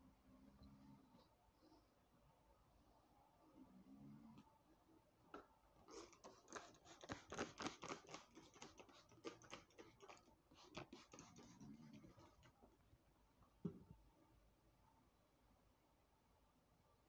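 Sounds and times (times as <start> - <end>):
light clicks and scratches: 5.4 - 12.8.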